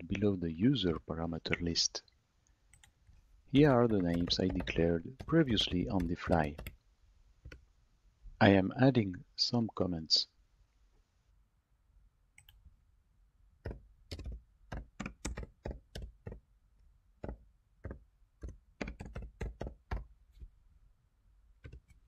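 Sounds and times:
keyboard typing: 2.7 - 6.8, 13.6 - 16.4, 17.2 - 20.1, 21.6 - 22.0.

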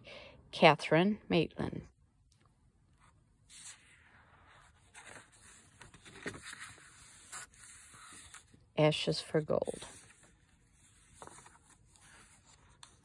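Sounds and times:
paper rustling and sliding: 3.0 - 8.6, 9.6 - 13.0.

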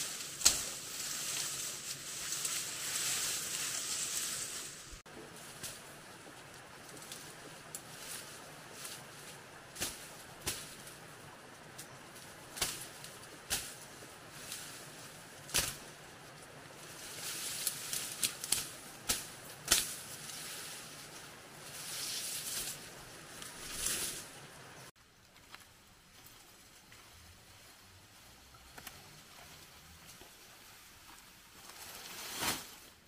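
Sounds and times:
rustling: 0.0 - 33.0
sharp snaps and knocks: 0.2 - 1.6, 12.5 - 13.8, 15.5 - 15.9, 17.6 - 20.1.

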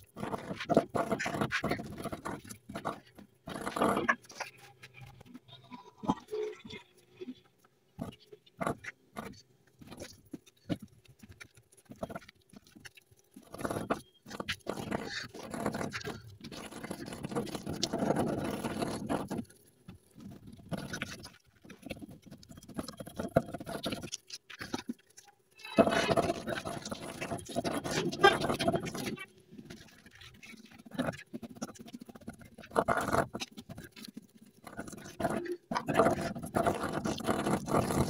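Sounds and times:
paintbrush scratchy brushing: 25.1 - 38.0.

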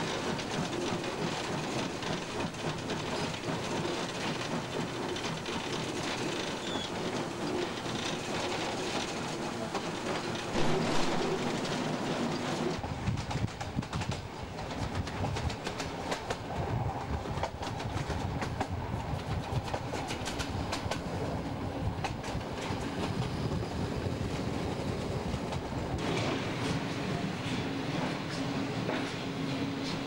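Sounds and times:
wheels clattering over rail joints: 0.0 - 16.5
steam locomotive cab rumble: 0.0 - 30.0.

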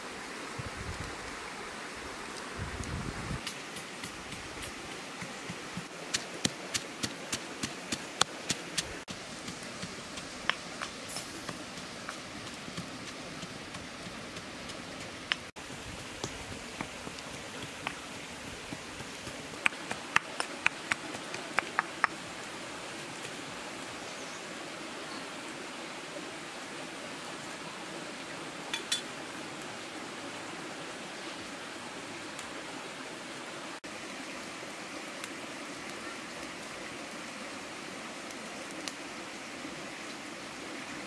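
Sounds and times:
steady hiss: 0.0 - 25.8
wood fire crackling: 2.3 - 23.1, 38.3 - 39.0.

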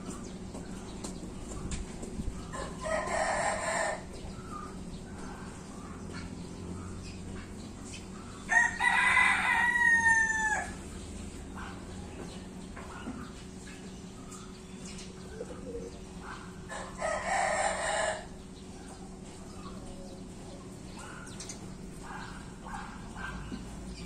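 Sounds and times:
rooster crowing: 2.5 - 4.2, 8.5 - 10.9, 16.7 - 18.4.

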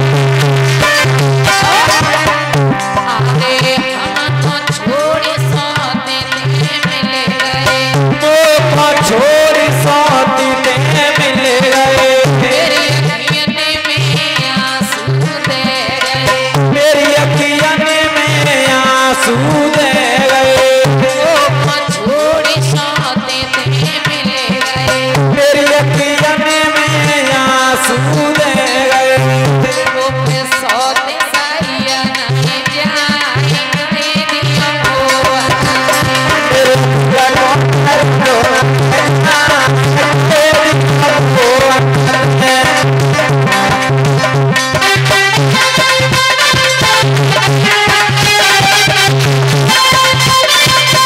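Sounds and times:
hand drum beat: 0.0 - 51.0.

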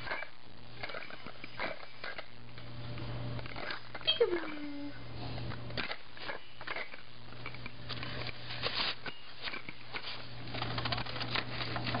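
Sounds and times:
toys rattling in plastic box: 10.0 - 12.0.

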